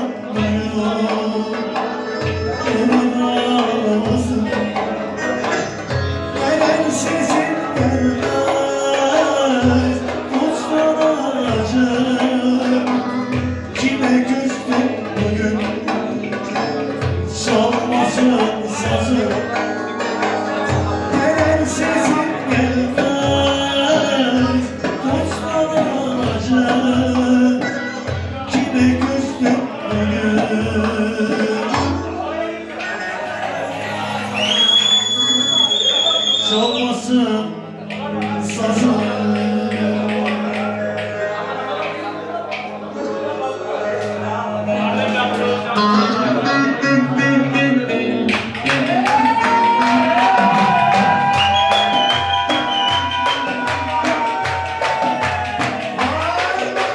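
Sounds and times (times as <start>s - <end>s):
saz melody: 0.0s - 56.9s
steady drum beat: 48.3s - 56.9s.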